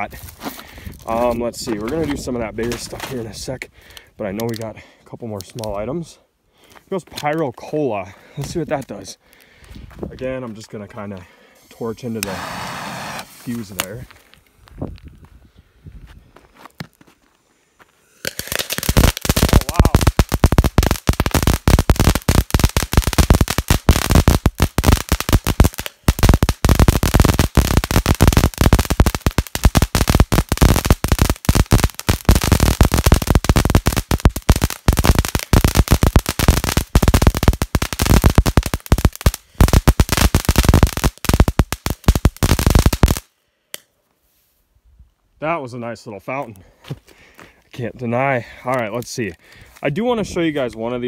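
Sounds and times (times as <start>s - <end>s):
firework fountain crackling: 11.8s - 14.0s, 18.2s - 43.3s.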